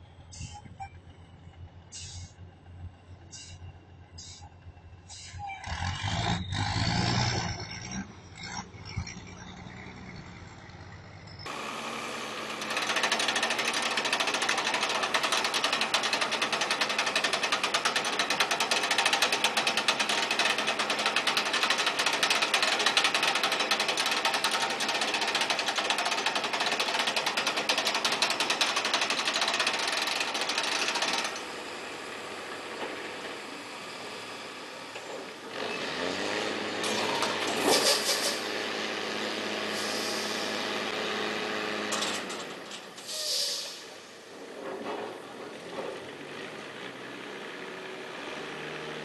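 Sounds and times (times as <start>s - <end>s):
truck engine rumbling: 0.0s - 49.0s
rapid mechanical clatter: 12.5s - 31.5s.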